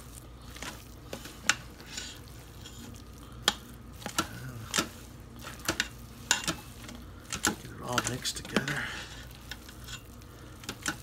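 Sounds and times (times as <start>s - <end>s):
spoon stirring food in pot: 0.0s - 11.0s.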